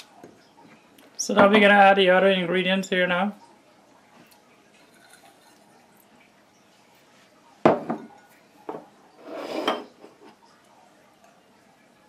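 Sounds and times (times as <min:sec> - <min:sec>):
cup clinking against glass bowl: 0:08.7 - 0:10.1.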